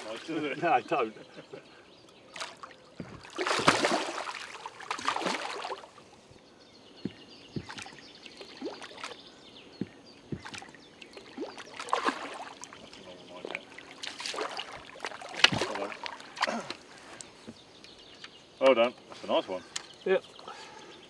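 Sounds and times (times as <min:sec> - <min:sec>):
sharp water slaps: 0:02.3 - 0:05.9, 0:07.1 - 0:09.2, 0:09.8 - 0:16.6
fish thrashing and splashing: 0:02.4 - 0:06.0, 0:10.4 - 0:16.5.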